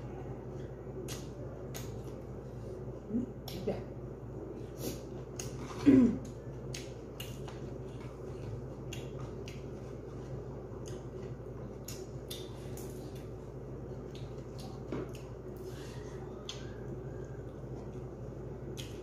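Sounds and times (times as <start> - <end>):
steady low hum: 0.0 - 19.0
person chewing food: 4.6 - 19.0.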